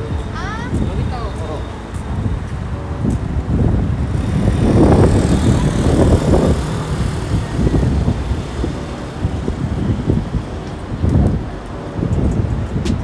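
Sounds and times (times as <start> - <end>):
vehicles passing on road: 0.0 - 13.0.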